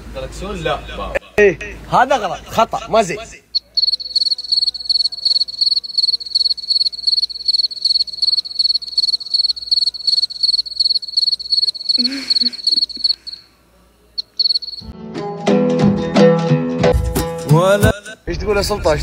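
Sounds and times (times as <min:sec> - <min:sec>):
cricket chirping: 0:03.5 - 0:13.5, 0:14.2 - 0:14.9.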